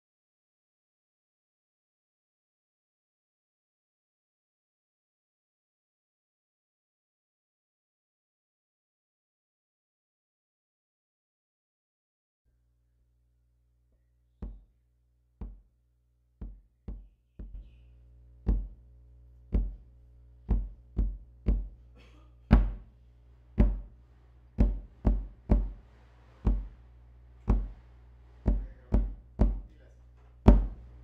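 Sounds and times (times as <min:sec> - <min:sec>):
large drum struck with stick: 0:20.5 - 0:21.8, 0:22.5 - 0:22.8, 0:23.6 - 0:24.0, 0:24.6 - 0:26.8, 0:27.5 - 0:27.8, 0:28.4 - 0:29.7, 0:30.5 - 0:30.9.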